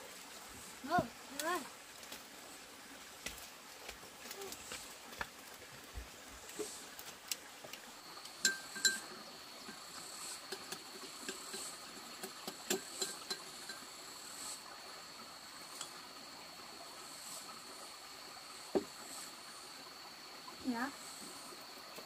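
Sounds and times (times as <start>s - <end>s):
high-pitched insect drone: 8.0s - 11.9s
sharp ringing clinks: 8.4s - 9.2s
utensils scraping a metal pot: 8.4s - 14.5s.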